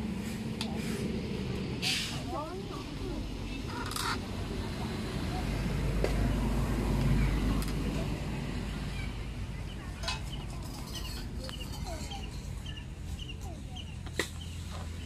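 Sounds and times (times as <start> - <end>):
birds chirping: 8.7 - 15.0.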